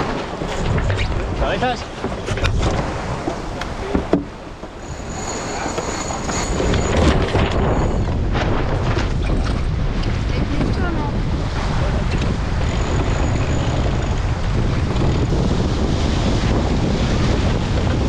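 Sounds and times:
water rushing along hull: 0.0 - 18.0
wind buffeting microphone: 0.0 - 18.0.

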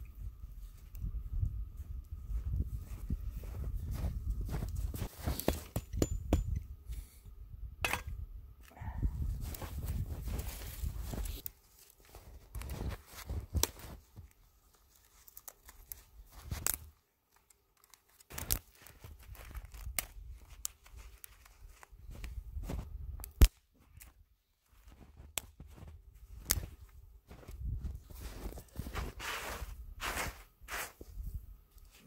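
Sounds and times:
brush rustling and crunching: 9.4 - 22.8
dry twigs snapping: 13.4 - 22.4, 23.2 - 24.2.

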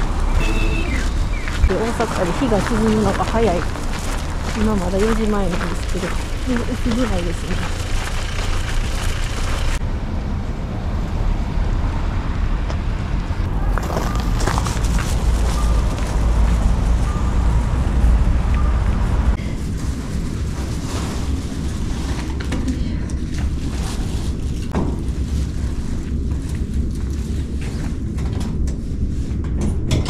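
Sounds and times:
rustling: 0.0 - 9.8, 13.5 - 17.4, 19.4 - 28.2
wind buffeting microphone: 0.0 - 10.4.

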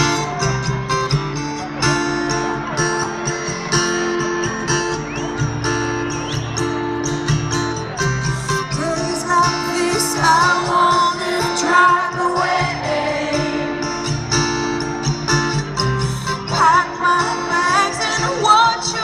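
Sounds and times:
live pop music with guitar: 0.0 - 19.0
woman singing: 8.7 - 13.7, 16.3 - 19.0.

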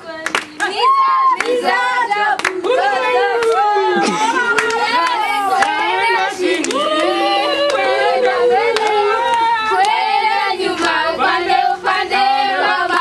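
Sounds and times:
hand claps: 0.2 - 1.6, 2.4 - 2.8, 3.4 - 3.7, 4.3 - 5.8, 6.5 - 10.0
children singing together: 1.6 - 13.0.

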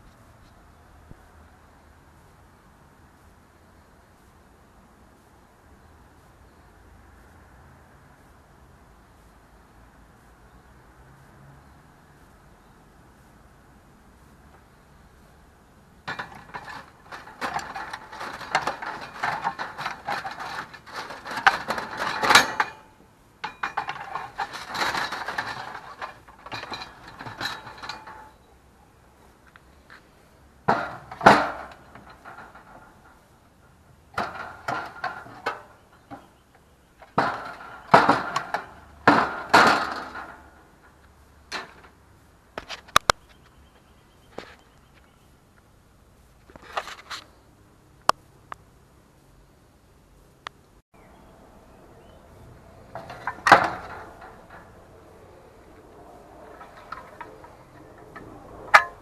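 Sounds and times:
hard objects clattering: 16.1 - 28.5, 30.6 - 36.4, 37.0 - 42.0, 52.2 - 59.0.

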